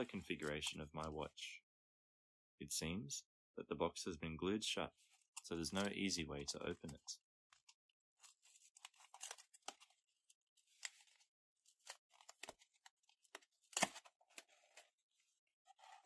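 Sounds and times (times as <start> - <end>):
cardboard scratching and ripping: 15.7 - 16.0.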